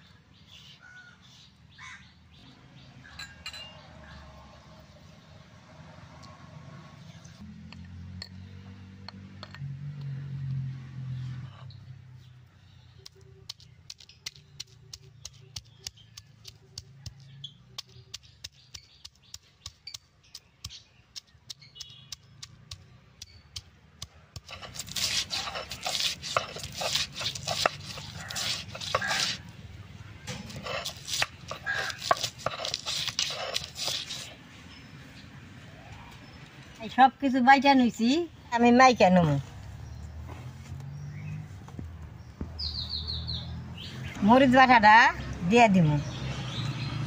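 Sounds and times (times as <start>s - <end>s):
garlic crunching and scraping: 13.0s - 34.4s.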